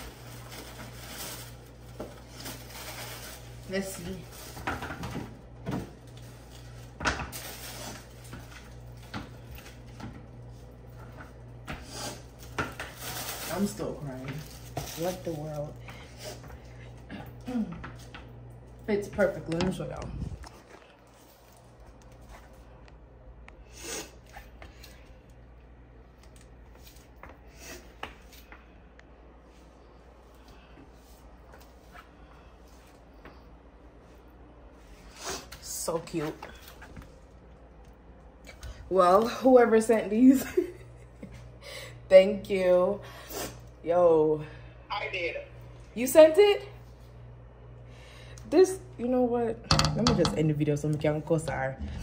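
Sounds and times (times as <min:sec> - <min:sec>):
steady low hum: 0:00.0 - 0:52.0
packaging rustling: 0:12.4 - 0:15.7.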